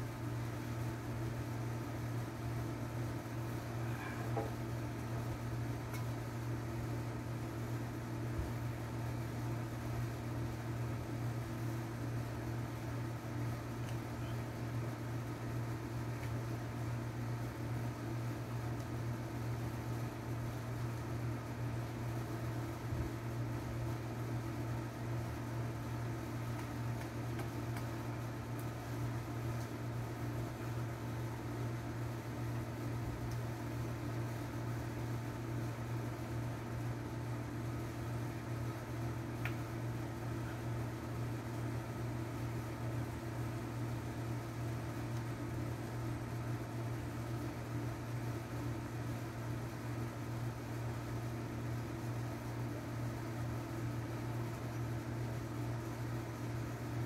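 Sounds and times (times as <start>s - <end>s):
low machine hum: 0.0s - 57.0s
faint click: 39.4s - 39.6s.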